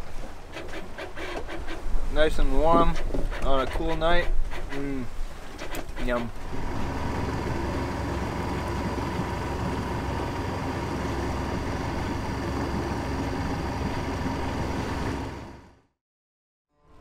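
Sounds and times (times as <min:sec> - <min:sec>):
boat engine droning: 0:05.8 - 0:15.9.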